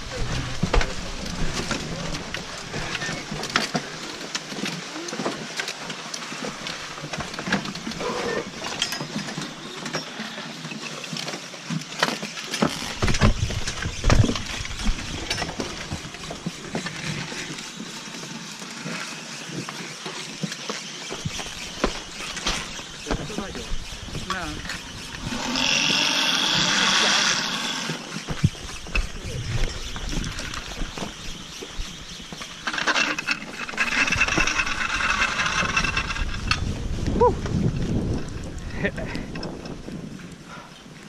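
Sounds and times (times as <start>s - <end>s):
ski poles clicking: 20.5s - 36.7s.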